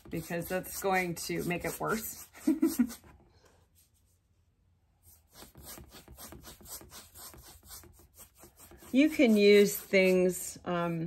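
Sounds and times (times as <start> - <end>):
paintbrush scrubbing on canvas: 0.0 - 4.3, 5.0 - 11.0.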